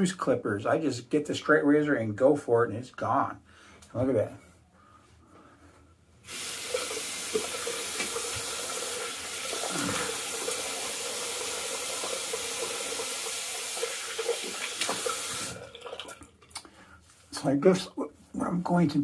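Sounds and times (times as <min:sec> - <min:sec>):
faucet running: 0:06.3 - 0:16.3.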